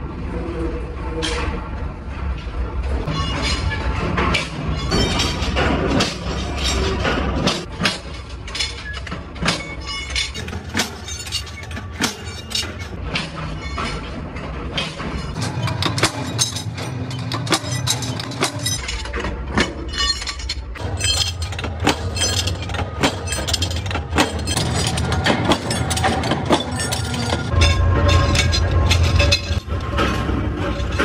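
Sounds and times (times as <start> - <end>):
steel pieces clattering onto pile: 3.1 - 14.1, 14.8 - 31.0
power press metallic clanks: 3.1 - 31.0.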